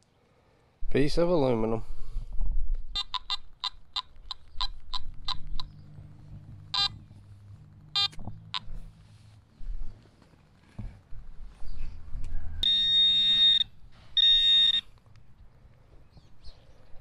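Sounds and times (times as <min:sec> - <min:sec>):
metal detector beeping: 0:03.0 - 0:07.2, 0:07.8 - 0:08.8, 0:12.6 - 0:15.0.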